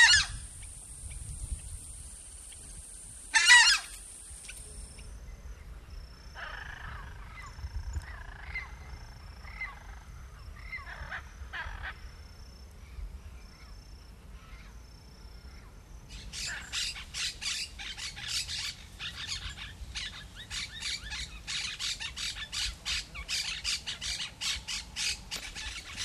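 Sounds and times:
loud short bird call: 0.0 - 0.5, 3.3 - 4.0
faint bird calls: 0.0 - 1.7, 2.4 - 26.0
low outdoor background: 0.0 - 26.0.

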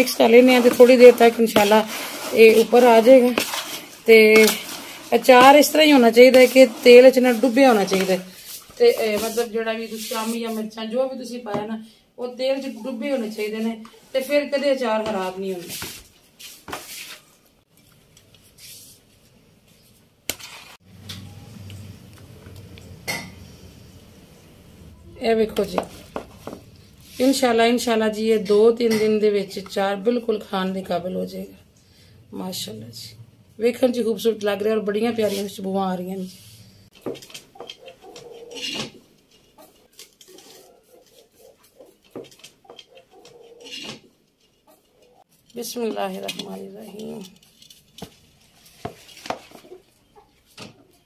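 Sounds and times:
spoon stirring pickle: 0.0 - 10.7
wooden spoon scraping plastic bucket: 0.0 - 10.9, 20.4 - 20.8, 37.0 - 49.9.

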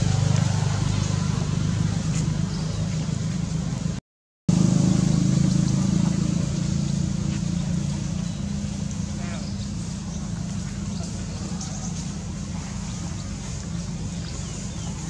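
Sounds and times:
low motor drone: 0.0 - 15.0.

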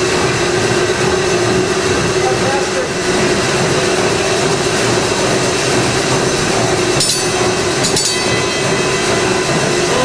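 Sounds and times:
steam engine mechanical din: 0.0 - 10.0
telegraph metallic ring: 7.0 - 10.0.

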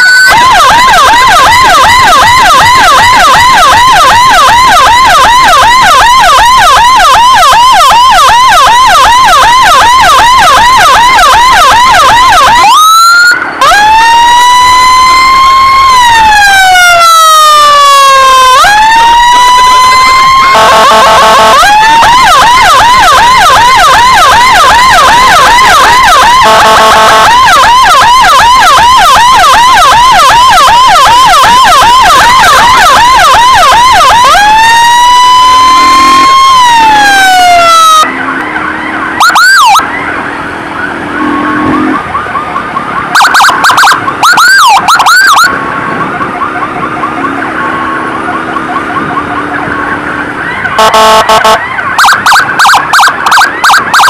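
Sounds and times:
short horn-like blasts: 0.0 - 34.3, 35.0 - 37.2, 50.8 - 54.0
electronic siren yelping and wailing: 0.0 - 54.0.

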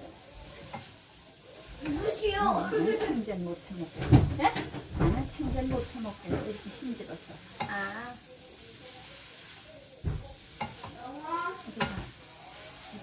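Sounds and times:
food sizzling in a pan: 0.0 - 13.0
utensil scraping a pan: 1.8 - 13.0
utensil knocking on a pan: 11.8 - 12.2.

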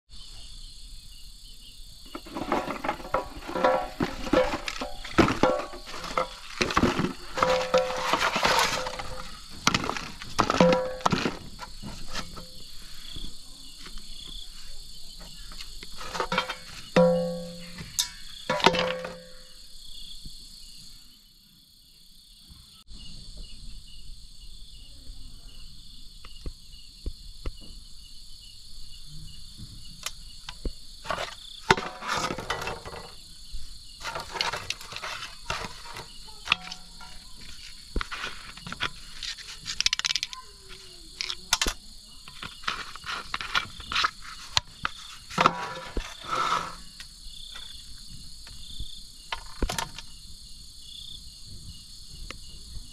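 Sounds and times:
crickets chirring: 0.1 - 52.9
plastic bottles knocking on metal basin: 2.1 - 12.5, 16.0 - 19.4, 31.1 - 33.2, 34.0 - 38.9.

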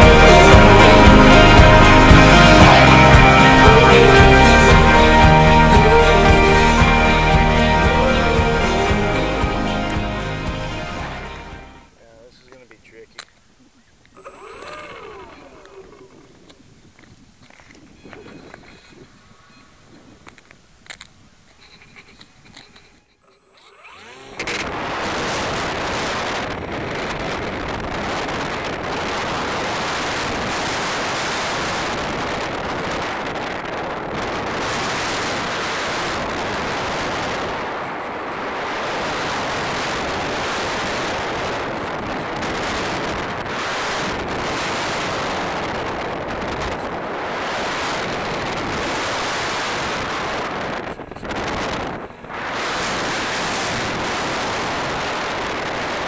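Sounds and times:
propeller noise: 0.0 - 11.9
wind rush: 24.3 - 56.0.

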